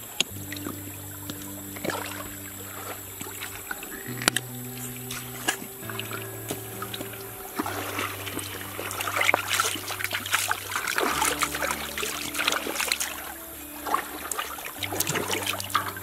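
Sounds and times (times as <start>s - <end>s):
water splashing and dribbling: 0.0s - 16.0s.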